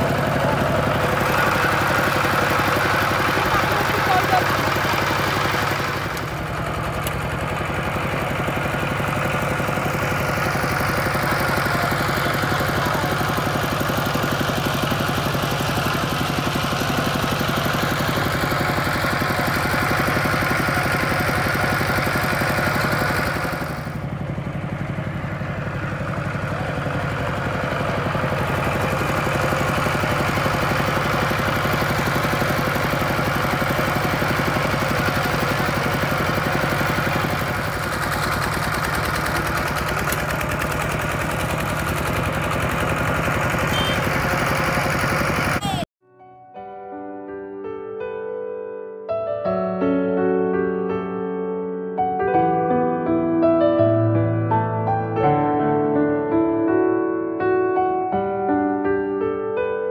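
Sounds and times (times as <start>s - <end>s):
diesel engine running: 0.0s - 45.9s.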